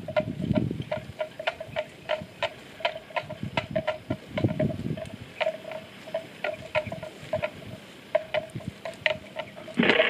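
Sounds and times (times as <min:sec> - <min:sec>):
low crunching: 0:00.0 - 0:10.0
buffalo tearing grass: 0:05.1 - 0:10.0.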